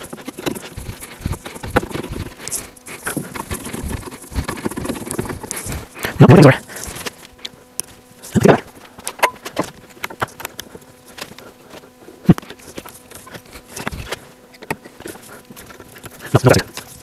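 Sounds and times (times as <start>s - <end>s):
chisel knocking and scraping wood: 0.0s - 5.9s.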